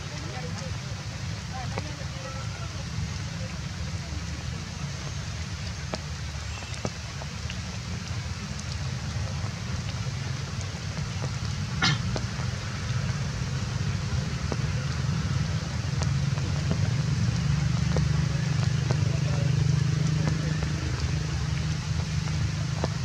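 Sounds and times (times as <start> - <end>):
sharp crackle: 4.4 - 13.6
light ticks: 8.5 - 8.9.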